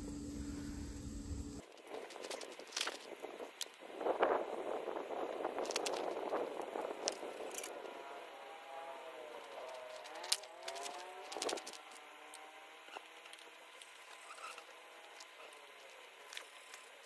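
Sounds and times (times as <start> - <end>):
faint engine hum: 0.0 - 17.0
hand tools clicking on metal: 9.5 - 12.4.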